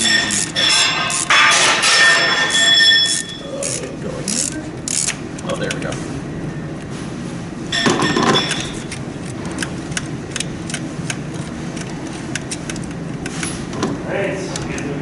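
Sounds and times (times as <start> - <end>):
tool clatter: 0.0 - 3.8, 7.7 - 8.9
workshop background hum: 0.0 - 15.0.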